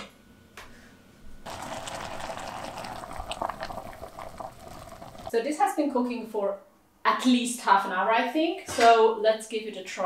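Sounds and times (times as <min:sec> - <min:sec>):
broth bubbling with small pops: 0:01.5 - 0:05.3.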